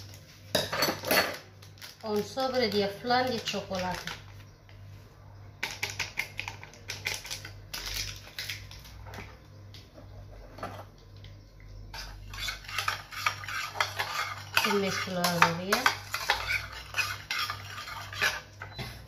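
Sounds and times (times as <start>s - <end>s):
metal spoon scraping saucepan: 11.9s - 18.8s.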